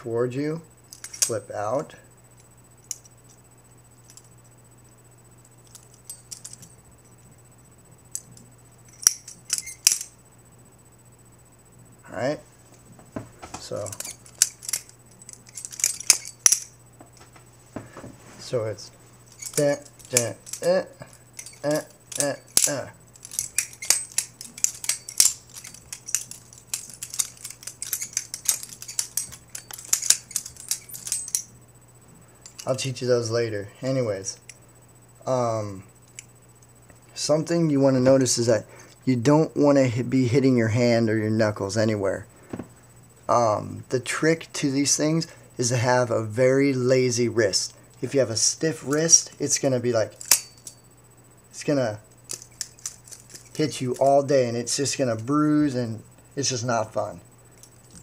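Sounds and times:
butterfly knife handles clacking: 0.9s - 1.4s, 5.6s - 6.8s, 8.1s - 10.2s, 13.5s - 17.3s, 19.3s - 31.5s, 32.4s - 32.8s, 48.8s - 50.8s, 52.3s - 54.8s
butterfly knife clicking: 21.4s - 31.5s.

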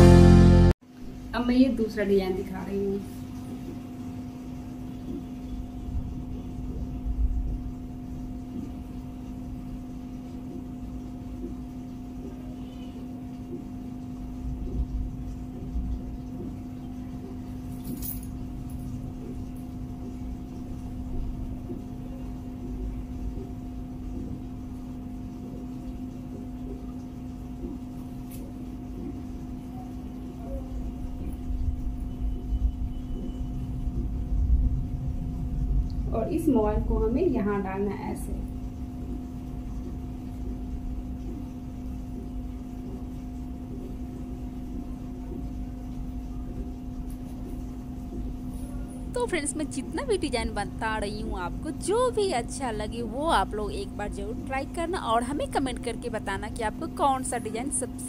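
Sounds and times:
higher steady tone: 0.0s - 0.8s, 49.2s - 58.0s
steady low hum: 0.0s - 58.0s.

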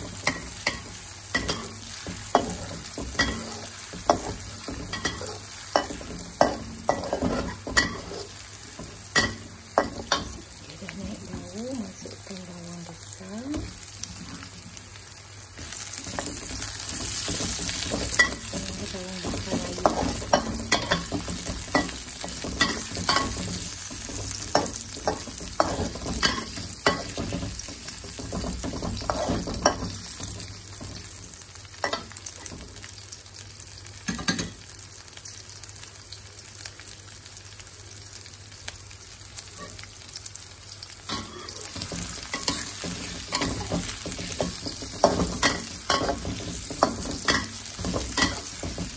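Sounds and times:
vegetables sizzling in hot oil: 0.0s - 48.9s
metal spatula scraping and clinking: 41.1s - 48.8s.

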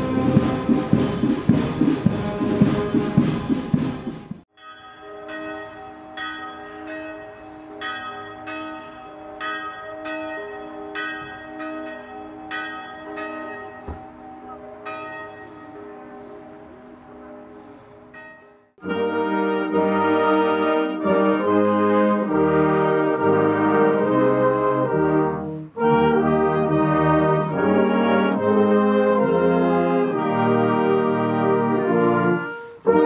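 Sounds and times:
church bells ringing: 0.0s - 1.2s, 4.5s - 33.0s
brass band music: 0.0s - 4.4s, 18.8s - 33.0s.

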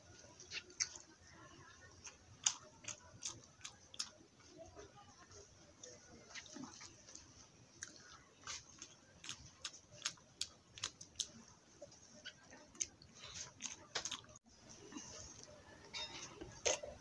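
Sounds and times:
wet chewing and lip-smacking: 0.4s - 1.1s, 1.7s - 4.2s, 6.3s - 14.4s.

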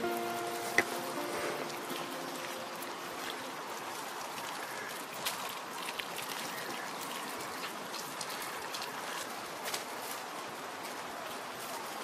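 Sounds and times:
steady rustling hiss: 0.0s - 12.0s.

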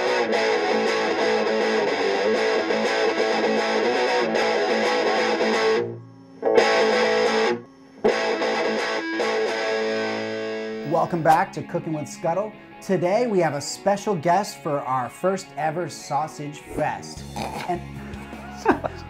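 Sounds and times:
guitar-led theme music: 0.0s - 19.0s.

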